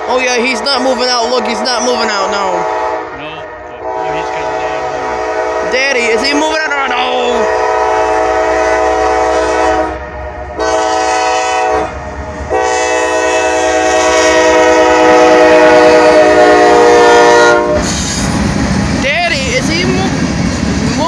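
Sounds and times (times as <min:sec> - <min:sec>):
locomotive air horn blasts: 0:02.6 - 0:06.0, 0:07.3 - 0:10.0, 0:10.6 - 0:18.1.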